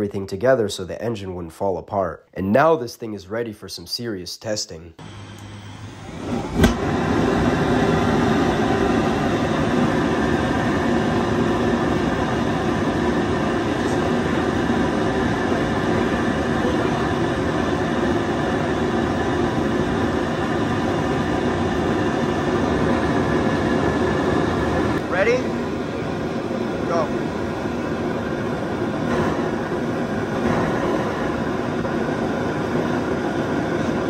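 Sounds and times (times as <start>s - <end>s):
jet engine roaring: 5.0s - 34.0s
sharp ignition pop: 6.5s - 6.9s.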